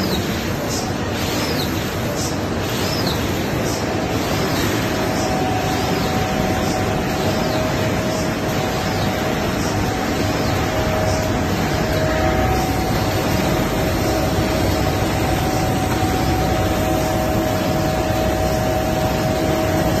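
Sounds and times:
constant machine whine: 0.0 - 20.0
machine fan-like rush: 0.0 - 20.0.

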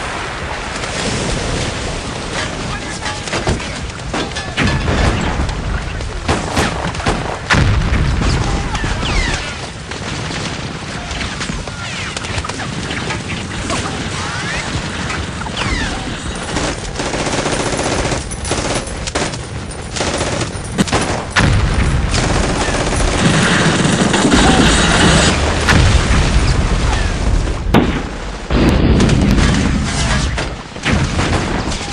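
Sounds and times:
rapid gunfire: 9.8 - 26.3
heavy bangs: 12.6 - 31.9.

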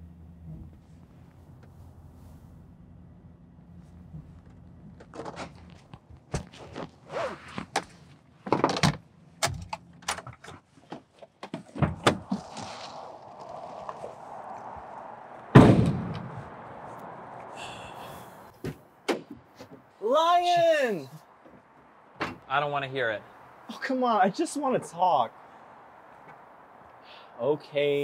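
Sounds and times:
knocks and rustles inside van: 0.3 - 2.0, 3.8 - 12.9, 18.5 - 20.8, 21.4 - 22.5
van door slamming: 15.6 - 16.3.

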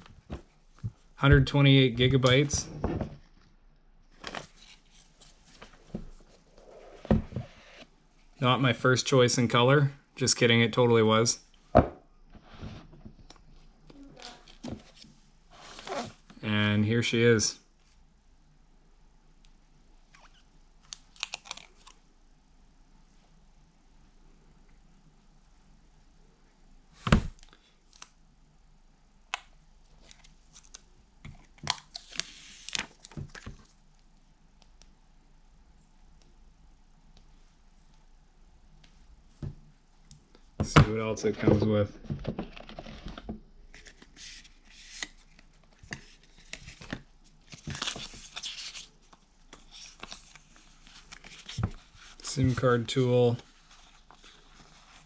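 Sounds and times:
paper and card rustling: 42.3 - 55.0.

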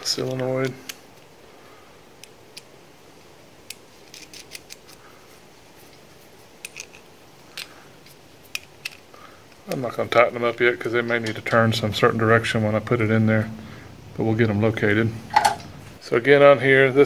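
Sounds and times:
small metal clicks: 3.6 - 5.0.

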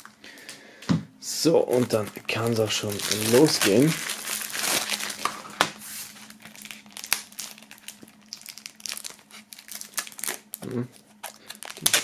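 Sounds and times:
cellophane crinkling: 1.4 - 12.0.

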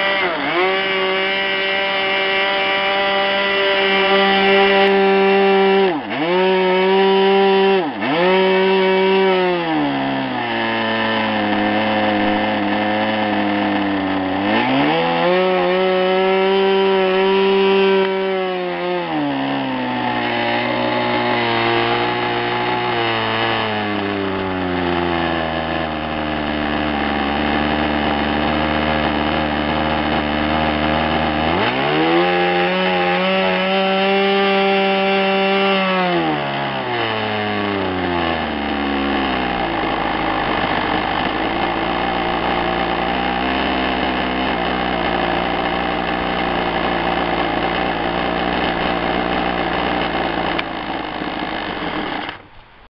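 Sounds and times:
model aircraft engine running: 0.0 - 6.4, 11.2 - 15.3, 19.0 - 34.1, 37.2 - 52.8.

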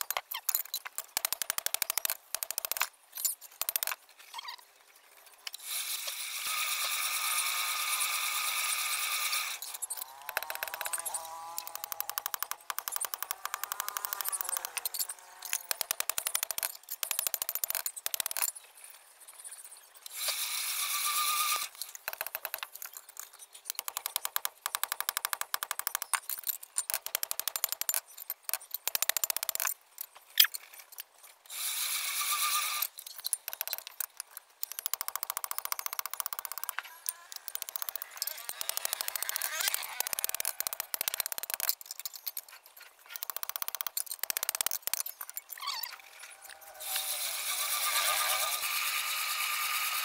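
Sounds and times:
rasping noise: 33.5 - 50.0.

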